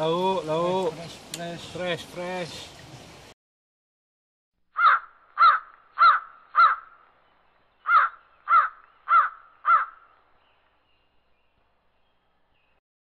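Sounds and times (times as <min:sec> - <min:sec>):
bird calling: 0:04.8 - 0:12.8.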